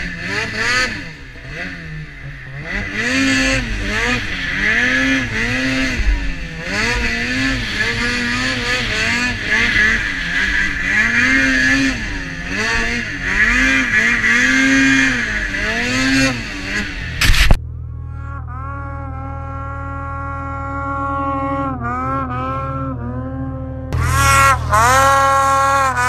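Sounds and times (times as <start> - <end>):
snowmobile engine revving: 0.0 - 26.0
loud burst of noise: 16.4 - 17.6.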